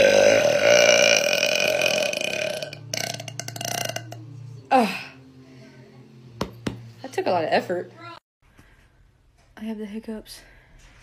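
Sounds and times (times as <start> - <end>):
woman burping: 0.0 - 5.0.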